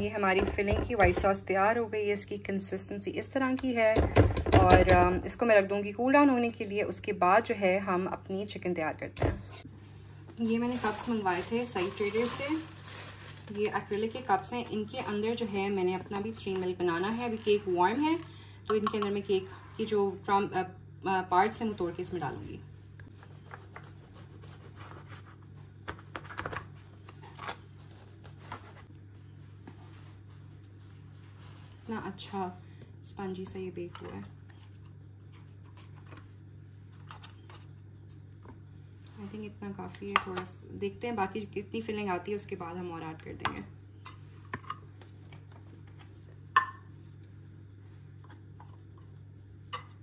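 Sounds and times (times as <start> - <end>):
steady low hum: 0.0 - 50.0.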